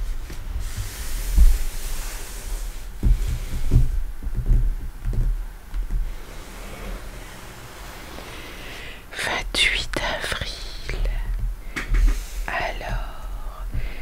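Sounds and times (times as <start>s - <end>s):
low dull bumps on book: 0.0s - 9.1s.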